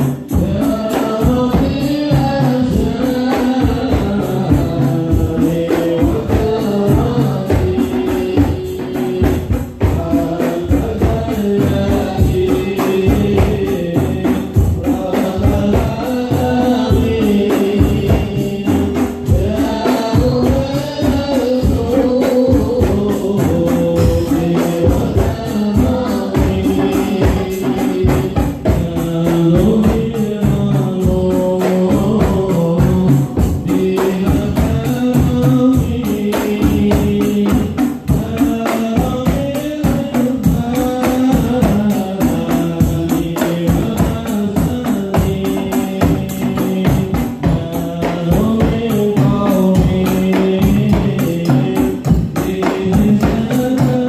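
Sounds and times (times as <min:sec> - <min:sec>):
fast hand drums: 0:00.0 - 0:54.0
group of voices singing: 0:00.0 - 0:54.0
cymbal: 0:16.2 - 0:38.2.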